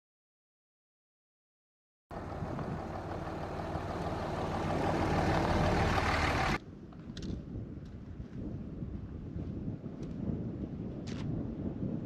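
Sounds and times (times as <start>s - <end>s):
pickup truck driving over gravel: 2.2s - 6.6s
wind buffeting microphone: 2.2s - 12.0s.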